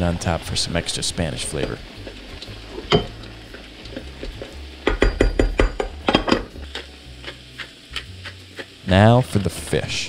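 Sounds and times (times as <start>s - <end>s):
glass lid clinking on pot: 2.9s - 3.1s.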